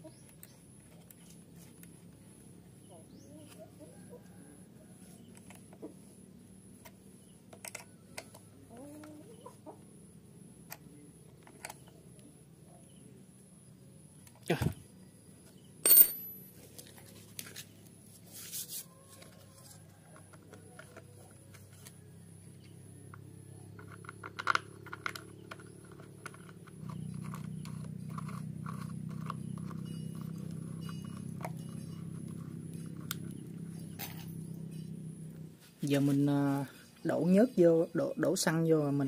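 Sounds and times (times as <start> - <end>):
steady low hum: 19.8 - 39.0.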